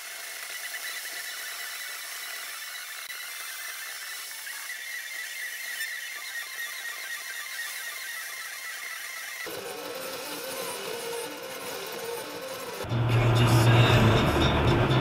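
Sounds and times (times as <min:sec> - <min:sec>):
high-pitched whine: 0:09.5 - 0:15.0.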